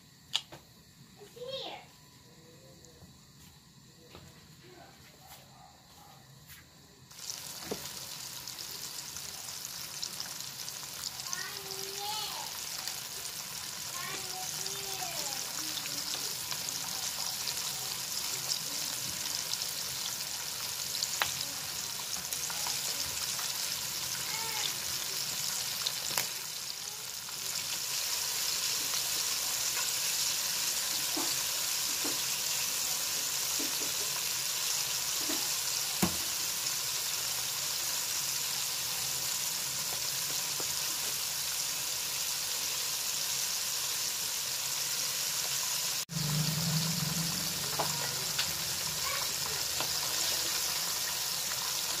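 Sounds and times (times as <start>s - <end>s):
chicken deep-frying in oil: 7.0s - 52.0s
low hum: 46.1s - 48.8s.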